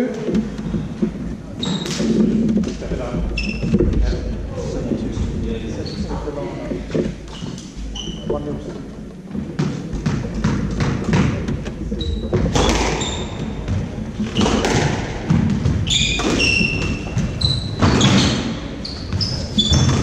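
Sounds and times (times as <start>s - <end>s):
sneakers squeaking on wooden floor: 0.0s - 20.0s
ball thudding against walls: 9.3s - 18.4s
squash ball cracking off rackets: 9.4s - 18.6s.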